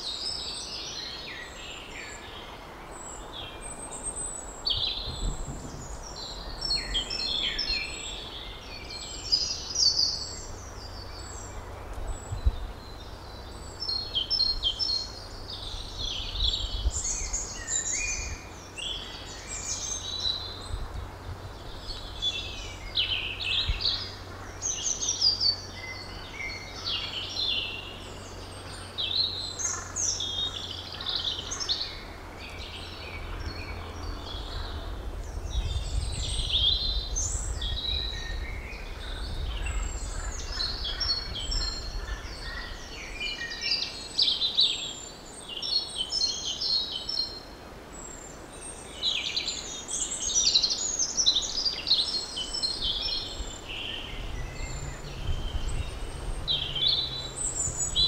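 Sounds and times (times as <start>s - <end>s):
songbirds singing: 0.0s - 58.0s
low rumble: 53.9s - 58.0s.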